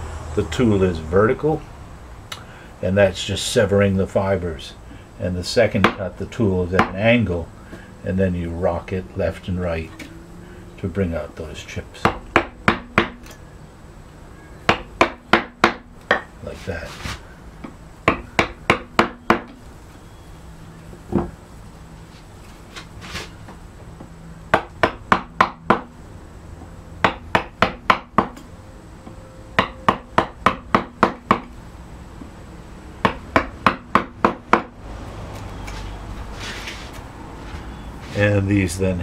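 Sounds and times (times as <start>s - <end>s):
mallet striking carving gouge: 6.8s - 7.0s, 12.0s - 13.3s, 14.7s - 16.3s, 18.0s - 19.6s, 24.5s - 25.9s, 27.0s - 28.4s, 29.6s - 31.5s.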